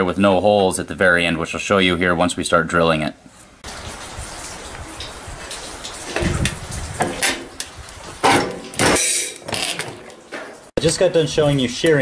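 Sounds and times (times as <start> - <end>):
metal sheet scraping and rattling: 3.8 - 12.0.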